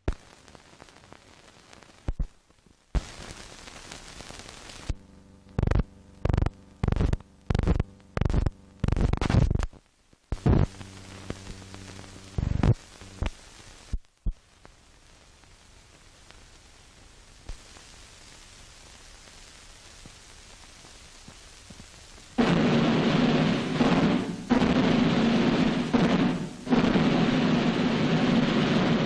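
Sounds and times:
crackling buzzing pops: 0:00.0 - 0:29.0
film soundtrack hiss: 0:00.0 - 0:29.0
low hum: 0:04.9 - 0:09.7, 0:10.3 - 0:13.4, 0:22.4 - 0:29.0.

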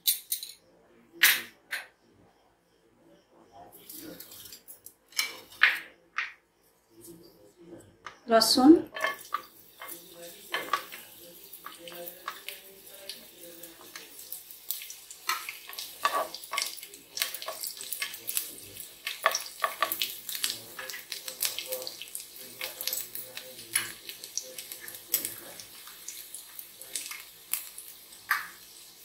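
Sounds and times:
garlic sizzling in oil: 0:08.3 - 0:29.0.

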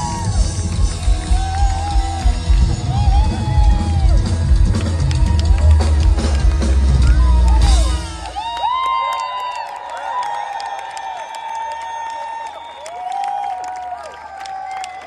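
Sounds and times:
loud rock music: 0:00.0 - 0:08.4
crowd cheering and whooping: 0:00.0 - 0:15.0.

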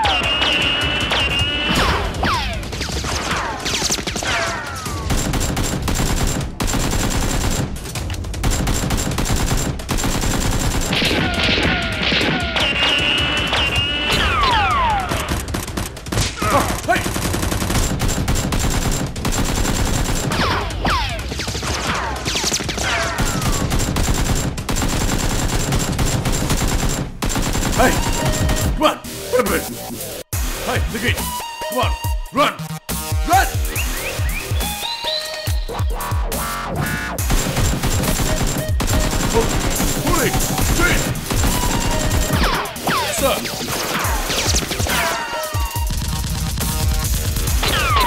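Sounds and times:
automatic gunfire: 0:01.8 - 0:13.5, 0:14.2 - 0:28.7, 0:37.2 - 0:45.1.

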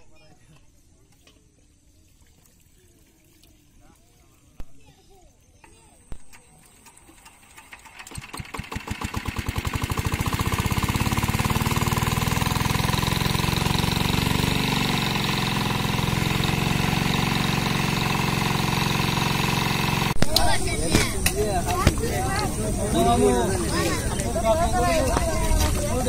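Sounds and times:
small engine starting up: 0:05.7 - 0:20.2.

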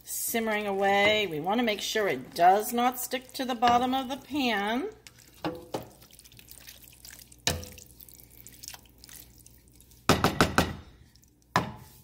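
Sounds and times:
spoon stirring thick chili: 0:00.0 - 0:12.0
wet dripping: 0:00.5 - 0:10.1, 0:10.9 - 0:11.6
spoon knocking on metal pan: 0:10.1 - 0:10.8.

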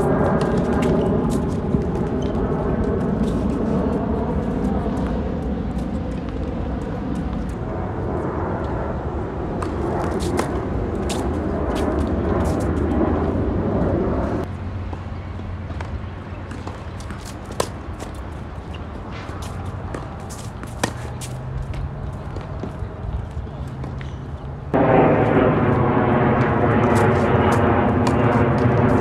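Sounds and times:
low outdoor rumble: 0:00.0 - 0:29.0
tennis ball hits and bounces: 0:09.6 - 0:11.2, 0:15.7 - 0:22.8.

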